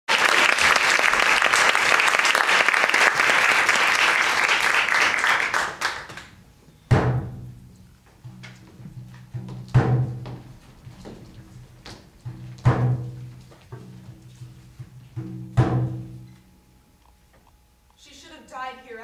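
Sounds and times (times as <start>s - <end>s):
audience applauding: 0.1s - 6.4s
low drum beat: 6.9s - 16.3s.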